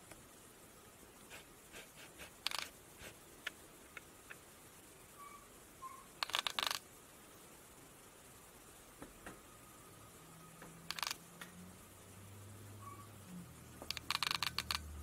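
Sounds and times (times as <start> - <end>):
cat claws scraping laptop screen: 1.8 - 3.2.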